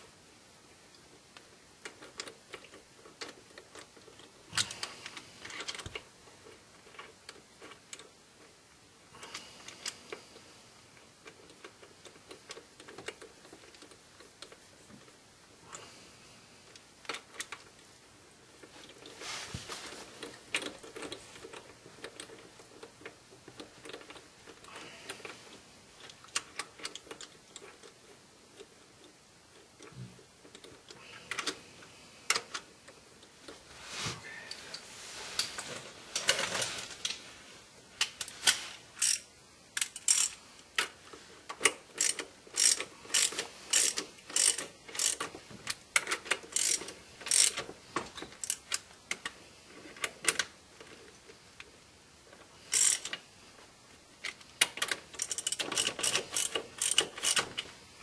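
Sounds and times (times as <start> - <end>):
hand ratchet clicking: 39.0 - 40.9, 41.5 - 45.3, 45.9 - 47.7, 48.4 - 49.2, 52.7 - 53.2, 54.2 - 57.6.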